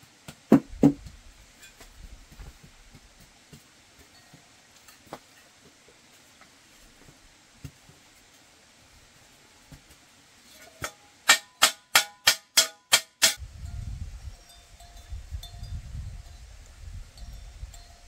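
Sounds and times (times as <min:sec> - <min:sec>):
sharp ringing knocks: 0:10.8 - 0:13.4.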